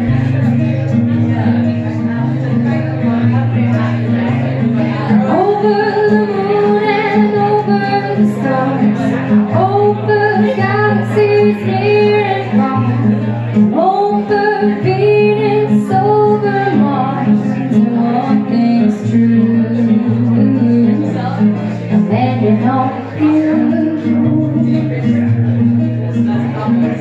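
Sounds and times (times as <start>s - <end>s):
strummed acoustic guitar: 0.0s - 27.0s
woman singing: 5.1s - 25.1s.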